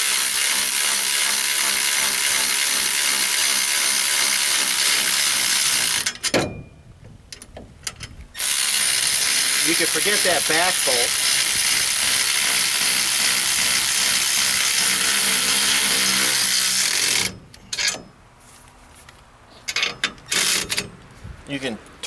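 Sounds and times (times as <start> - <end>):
cordless ratchet running: 0.0 - 6.1, 8.4 - 17.3.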